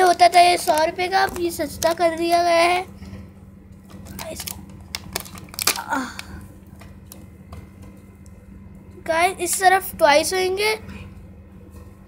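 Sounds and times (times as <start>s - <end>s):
plastic tray clicks and crinkles: 0.0s - 2.4s, 3.9s - 6.3s
low steady hum: 0.0s - 12.0s.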